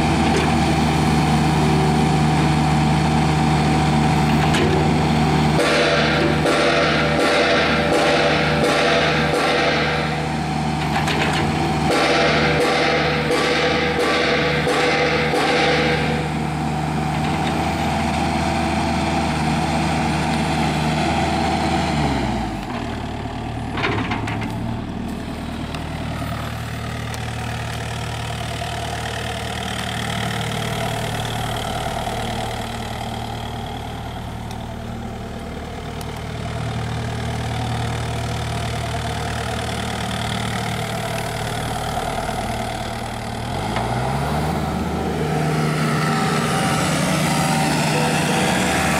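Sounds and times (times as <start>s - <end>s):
excavator diesel engine running: 0.0s - 48.9s.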